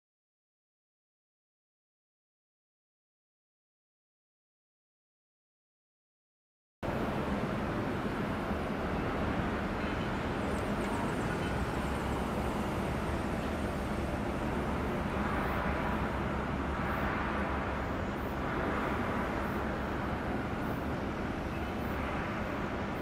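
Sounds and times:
faint constant hum: 6.8 - 23.0
low outdoor rumble: 6.8 - 23.0.

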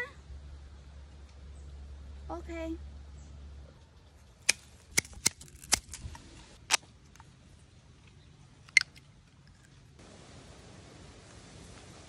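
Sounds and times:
hand shears snipping plant stem: 4.4 - 6.9
shears snipping plastic straw: 4.4 - 6.9.

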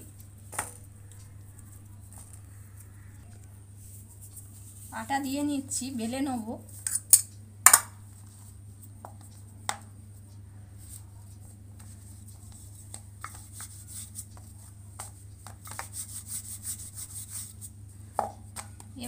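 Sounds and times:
soft rubbing: 0.0 - 5.6, 10.8 - 18.0
steady low hum: 0.0 - 19.0
hands patting dough: 7.7 - 19.0.

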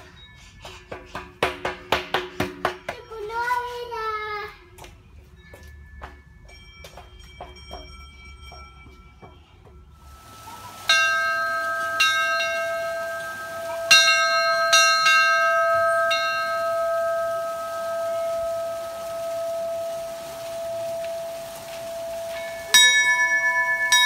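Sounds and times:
footsteps in metal tunnel: 0.4 - 10.2
bell ringing: 5.2 - 24.0.

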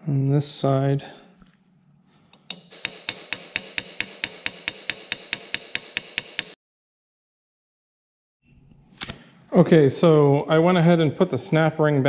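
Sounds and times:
hammer tapping on metal: 2.4 - 6.6.

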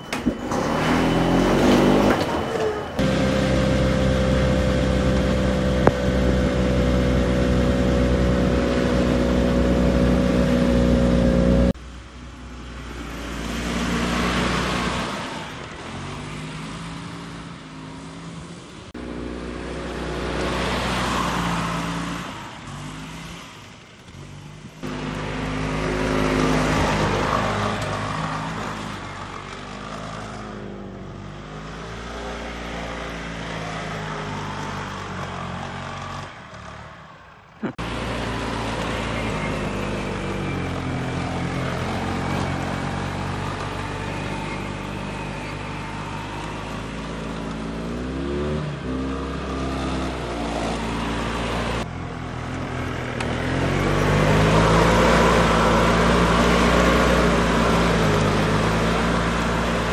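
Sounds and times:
golf cart engine running: 0.0 - 11.9, 24.8 - 59.9.

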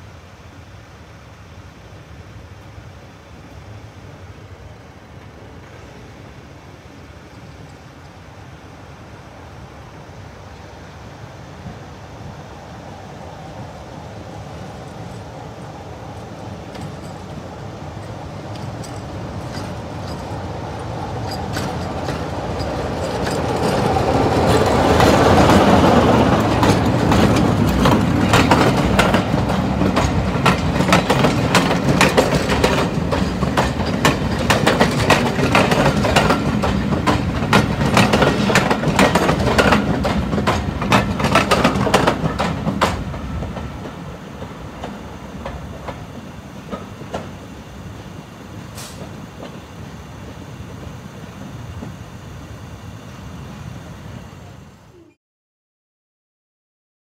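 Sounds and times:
diesel locomotive engine passing: 2.6 - 55.2
train wheels clicking over track: 14.5 - 52.0.

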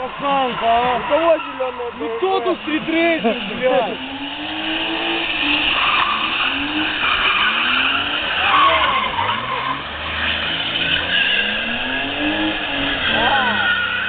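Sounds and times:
car engine revving: 0.0 - 14.0
tyres skidding on wet asphalt: 0.0 - 14.0.

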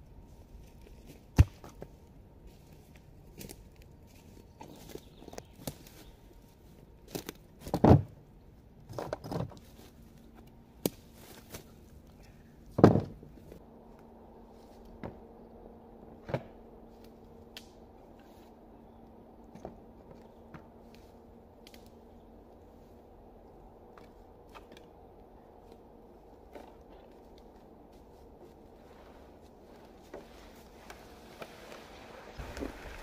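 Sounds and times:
footsteps crunching dry leaves: 29.6 - 33.0.

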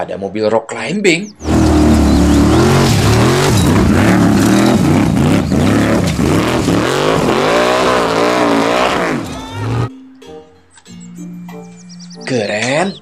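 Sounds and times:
buggy engine revving: 1.2 - 9.9.

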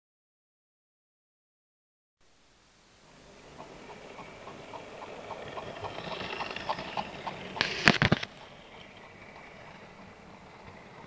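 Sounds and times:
model train clicking on track: 3.5 - 11.0
wagons clattering: 4.2 - 11.0.

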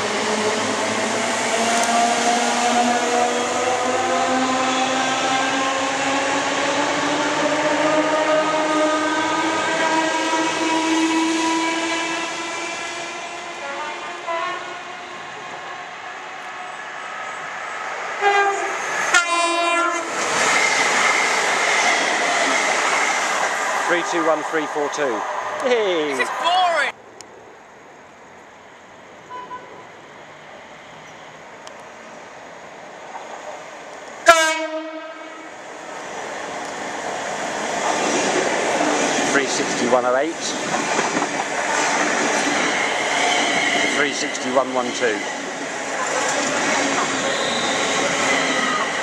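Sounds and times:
train wheels rushing on rails: 0.0 - 25.6, 30.0 - 49.0
high whine of train: 0.0 - 49.0
two-tone train horn: 7.7 - 13.0, 13.6 - 15.6, 18.2 - 20.1, 29.3 - 29.8, 34.2 - 35.5, 47.2 - 47.8
train rumble: 28.0 - 49.0.

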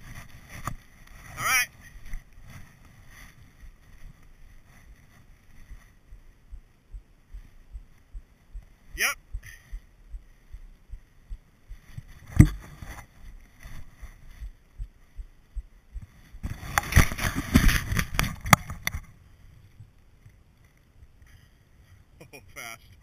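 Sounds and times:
sharp knock: 12.4 - 12.6.

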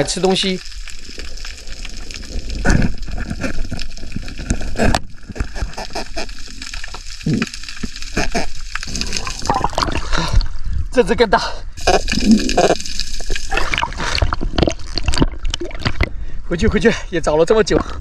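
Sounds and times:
water sloshing and gurgling: 0.0 - 11.0, 11.7 - 17.0, 17.6 - 18.0
splashes and knocks: 12.1 - 16.2.

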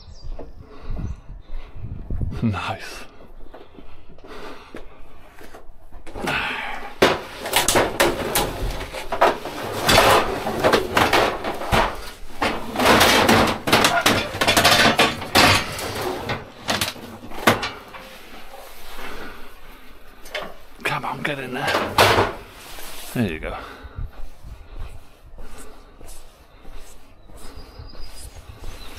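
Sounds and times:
scrap metal clattering and banging: 6.0 - 23.2.

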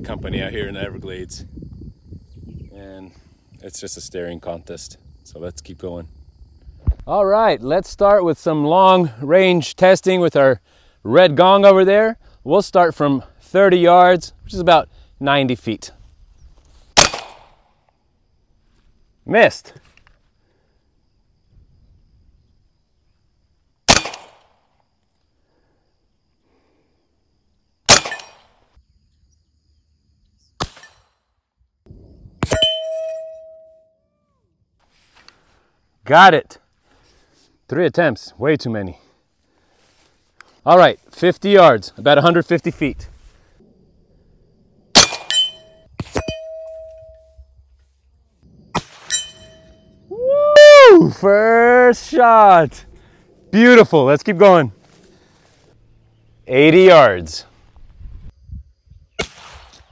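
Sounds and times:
air rifle shots: 16.9 - 17.6, 23.9 - 24.5, 27.9 - 28.6, 30.6 - 31.1, 44.9 - 46.4, 48.7 - 49.4, 59.2 - 59.9
metallic ring of steel gong: 32.6 - 33.9, 45.4 - 47.4.

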